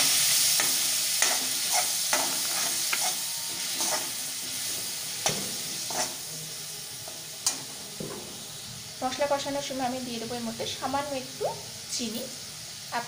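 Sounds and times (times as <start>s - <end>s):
masala sizzling in oil: 0.0s - 13.0s
spatula scraping and knocking pan: 0.5s - 6.2s.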